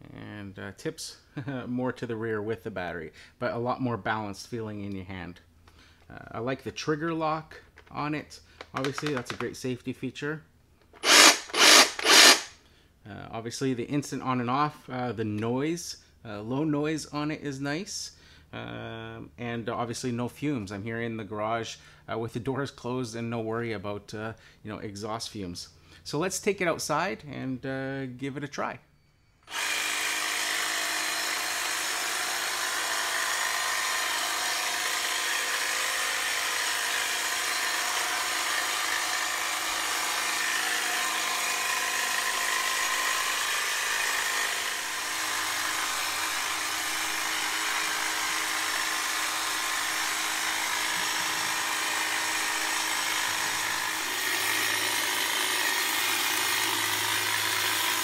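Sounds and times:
hedge trimmer motor whining: 0:08.8 - 0:09.4, 0:11.0 - 0:12.5, 0:29.4 - 0:58.0.

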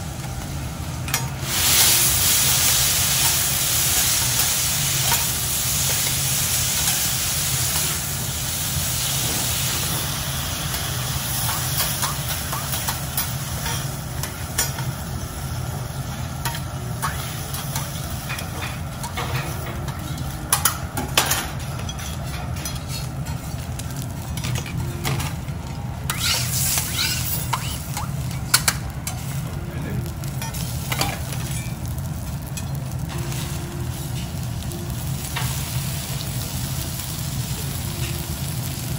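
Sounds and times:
meat sizzling on a griddle: 0:00.0 - 0:38.9
metal utensils scraping griddle: 0:18.3 - 0:23.6, 0:26.1 - 0:27.8.

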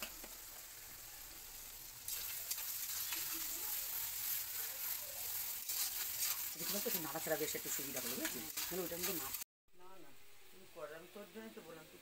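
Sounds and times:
onions sizzling in hot oil: 0:00.0 - 0:09.5, 0:10.8 - 0:12.0
spatula stirring in pan: 0:01.6 - 0:09.4.

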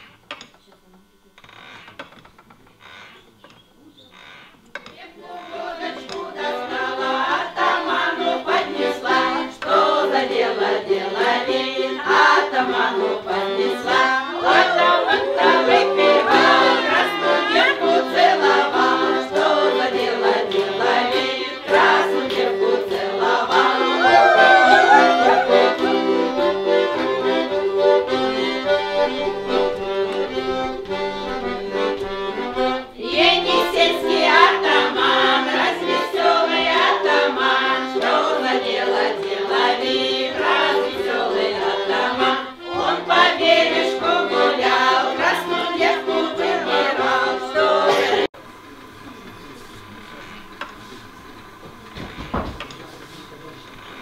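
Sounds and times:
women singing: 0:05.0 - 0:26.3, 0:32.6 - 0:48.3
accordion playing folk tune: 0:05.2 - 0:48.3.

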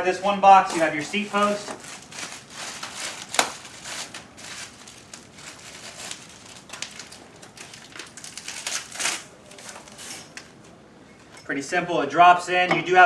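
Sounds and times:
packing wrap crinkling: 0:00.2 - 0:10.6.

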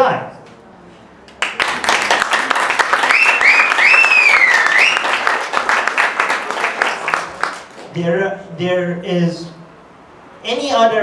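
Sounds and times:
audience applauding: 0:01.4 - 0:07.9
person whistling: 0:03.1 - 0:05.1.

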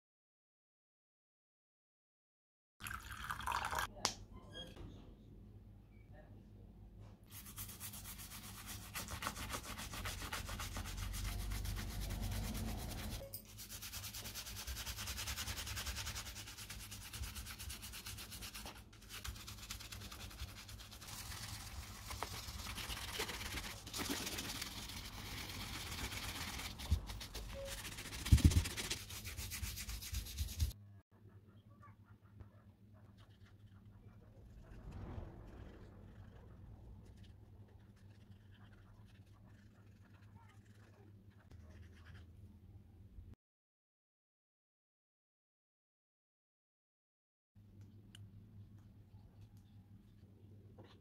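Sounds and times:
brush scrubbing leather: 0:07.3 - 0:30.8.

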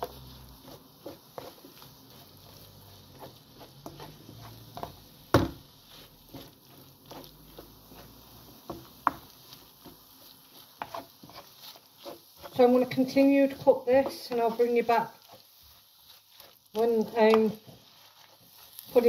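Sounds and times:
spatula scraping frying pan: 0:00.0 - 0:19.0
spatula knocking on pan: 0:03.8 - 0:05.7, 0:08.6 - 0:10.0.

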